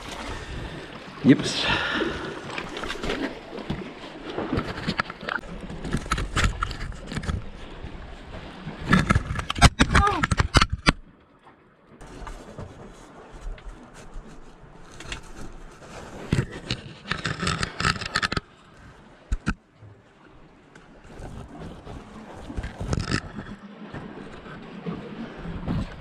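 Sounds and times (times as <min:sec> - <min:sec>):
scratchy handling noise: 0:04.5 - 0:07.5, 0:12.0 - 0:18.5, 0:21.1 - 0:23.6
camera scraping against stone: 0:04.6 - 0:07.4, 0:14.9 - 0:18.5, 0:22.6 - 0:23.6.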